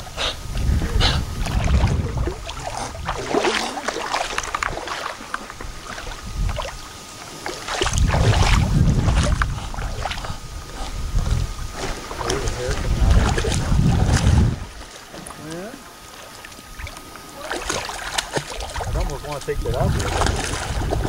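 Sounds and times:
wind rumble on microphone: 0.0 - 3.5, 5.5 - 7.0, 7.7 - 14.8, 18.7 - 21.0
water splashing and sloshing: 0.0 - 21.0.

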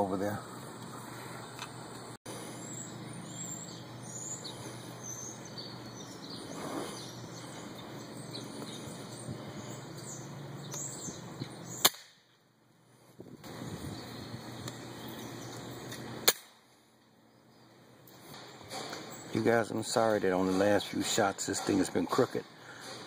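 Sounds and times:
outdoor background noise: 0.0 - 23.0
small birds chirping: 0.0 - 23.0
sharp click: 15.9 - 16.5.

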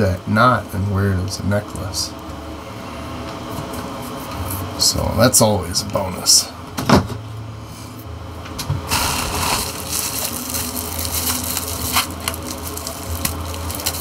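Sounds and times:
steady low hum: 0.0 - 14.0
packaging crinkling and rustling: 8.9 - 14.0.

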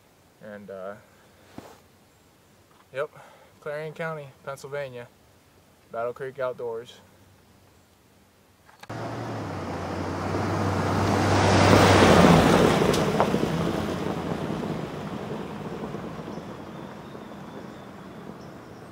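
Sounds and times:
truck engine hum: 8.9 - 18.9
tyres crunching over gravel: 12.0 - 18.9.

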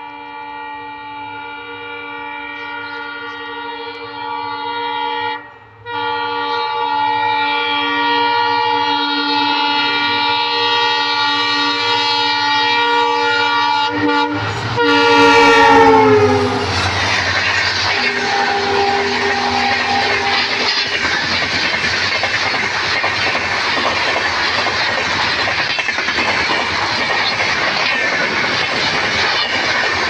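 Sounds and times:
locomotive air horn blowing: 0.0 - 21.0
passing train rush and rumble: 0.0 - 30.0.

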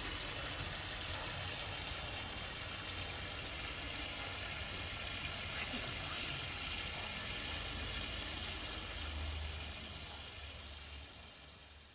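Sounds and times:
continuous high hiss: 0.0 - 11.9.

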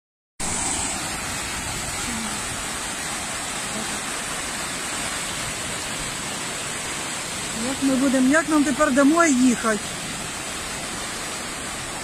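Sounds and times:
floodwater rushing across ground: 0.4 - 12.0.

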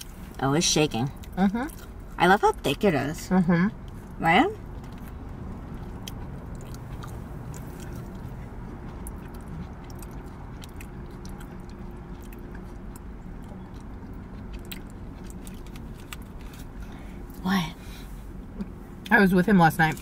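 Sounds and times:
steady low hum: 0.0 - 20.0
chewing and crunching food: 1.0 - 2.2, 3.8 - 17.4.

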